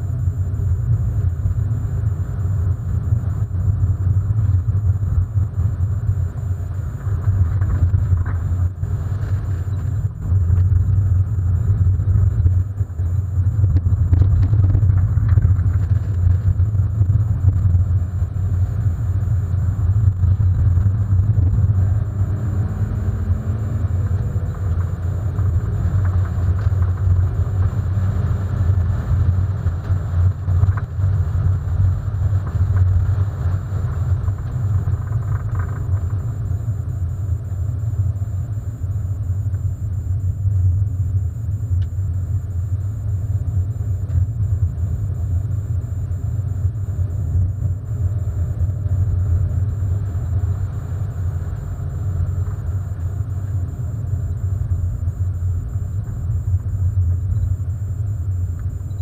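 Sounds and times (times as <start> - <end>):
car engine rumbling: 0.0 - 59.0.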